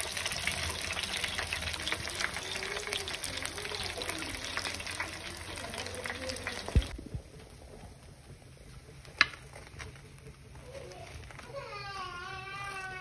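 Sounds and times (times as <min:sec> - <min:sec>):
meat sizzling in hot oil: 0:00.0 - 0:07.0.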